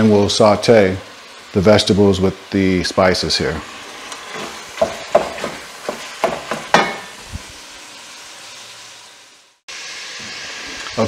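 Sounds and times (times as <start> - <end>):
meat sizzling in a pot: 0.0 - 11.0
wooden spoon knocking on pot: 4.8 - 7.1.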